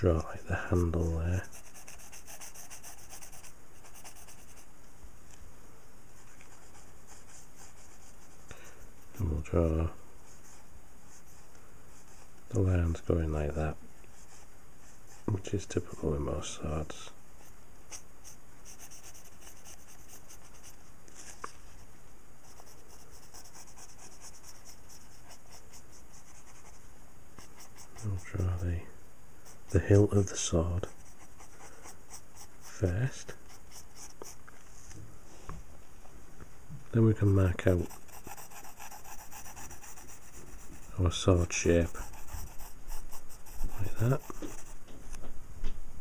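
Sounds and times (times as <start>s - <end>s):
drawing point scratching on paper: 0.0s - 4.7s, 17.4s - 20.8s, 22.4s - 26.8s, 27.4s - 28.6s, 29.4s - 34.4s, 37.2s - 44.8s.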